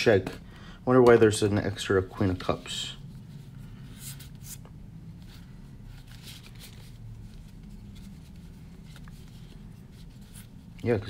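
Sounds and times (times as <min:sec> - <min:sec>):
low steady hum: 0:00.0 - 0:11.0
papery card swishes: 0:02.3 - 0:10.9.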